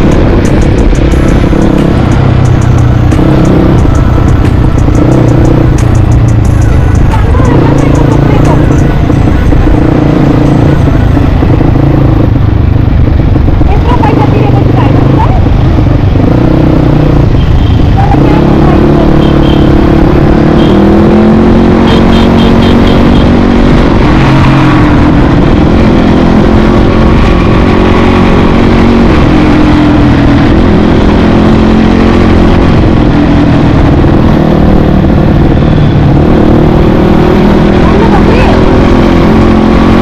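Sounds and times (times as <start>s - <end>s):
dirt bike engine revving: 18.0s - 40.0s.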